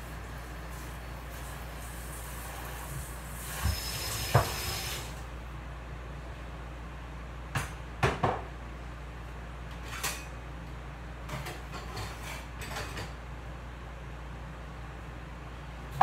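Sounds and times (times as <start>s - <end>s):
dishes and cutlery clinking: 11.3s - 13.2s.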